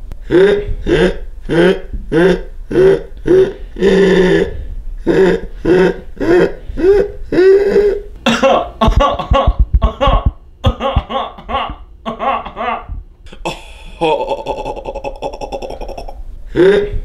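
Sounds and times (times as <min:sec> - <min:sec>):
men laughing: 0:00.3 - 0:17.0
thumps on microphone: 0:08.8 - 0:11.1.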